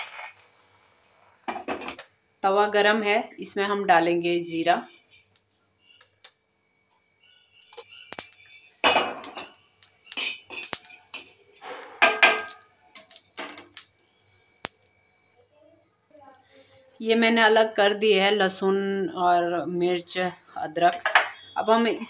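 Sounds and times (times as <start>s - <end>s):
seeds scattering across pan: 7.6s - 8.6s, 9.2s - 11.6s, 12.4s - 14.0s
iron pan knocking and scraping on grate: 10.2s - 12.6s.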